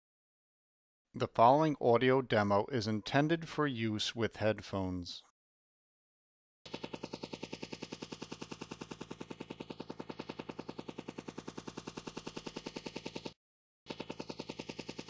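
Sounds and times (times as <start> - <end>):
helicopter rotor chopping: 6.7 - 15.0.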